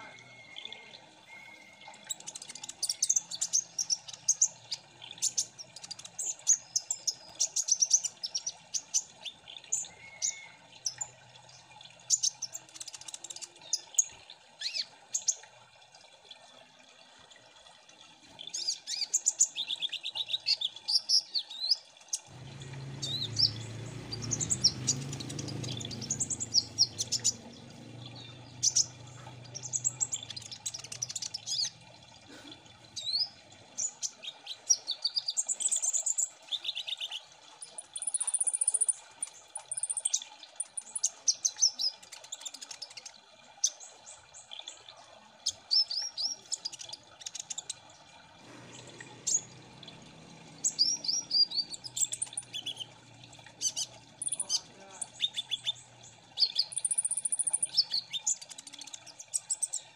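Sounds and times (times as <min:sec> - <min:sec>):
sunbirds chirping and trilling: 0:00.0 - 0:15.4, 0:18.4 - 0:43.1, 0:43.7 - 0:59.9.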